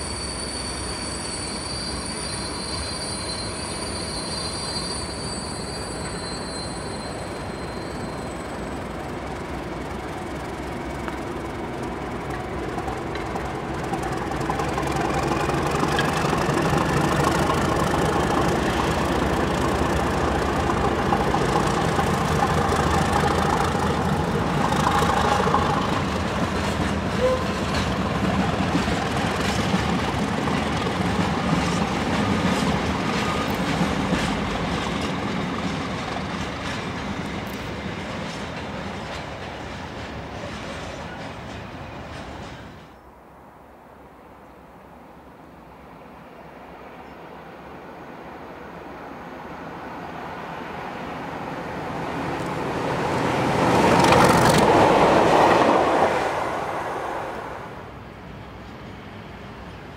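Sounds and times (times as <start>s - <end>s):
diesel locomotive engine: 0.0s - 59.9s
wagons rolling by: 11.5s - 38.4s.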